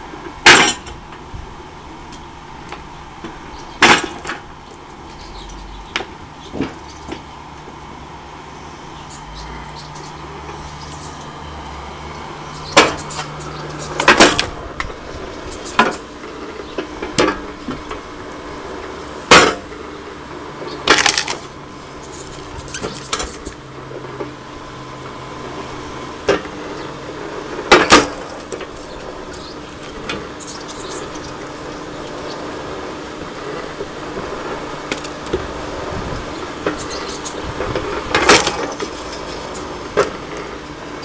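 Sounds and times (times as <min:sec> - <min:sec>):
log splitter motor humming: 0:00.0 - 0:41.0
logs cracking as they split: 0:20.8 - 0:23.4.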